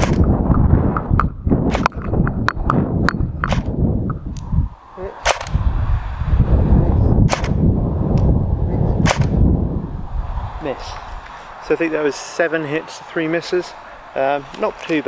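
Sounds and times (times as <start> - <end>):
airsoft gun shots: 0.0 - 0.3, 5.2 - 5.6, 7.3 - 7.6, 9.0 - 9.4
wind rumble on microphone: 0.0 - 12.1.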